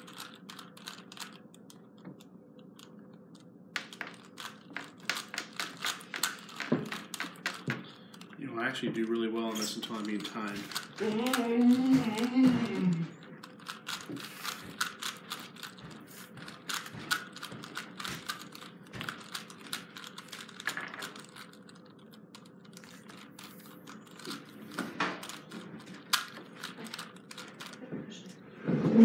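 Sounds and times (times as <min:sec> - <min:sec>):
plastic puzzle cube clicking: 0:00.0 - 0:02.0, 0:02.7 - 0:08.3, 0:09.0 - 0:15.8, 0:16.5 - 0:27.8
man speaking: 0:08.4 - 0:11.4.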